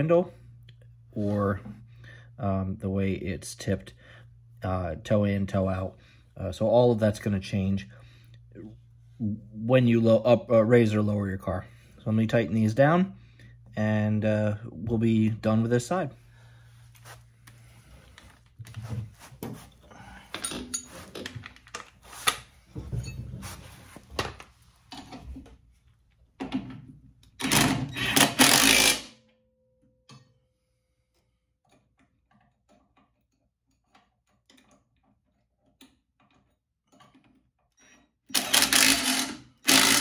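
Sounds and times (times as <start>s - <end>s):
metal tools clanking: 20.2s - 21.8s
impact wrench bursts: 27.4s - 29.2s, 38.3s - 40.0s.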